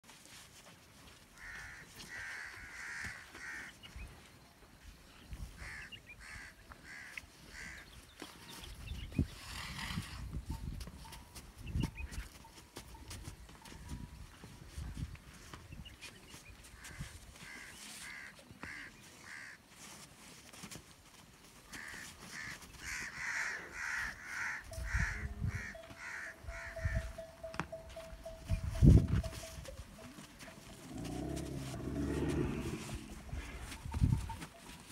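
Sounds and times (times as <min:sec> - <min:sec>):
crow cawing: 0:01.4 - 0:03.7, 0:05.6 - 0:07.8, 0:16.9 - 0:19.6, 0:21.8 - 0:27.2.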